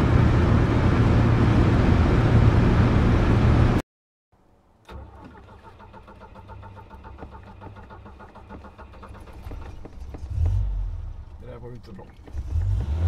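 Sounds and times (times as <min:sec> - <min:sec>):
car engine idling: 0:04.9 - 0:12.8.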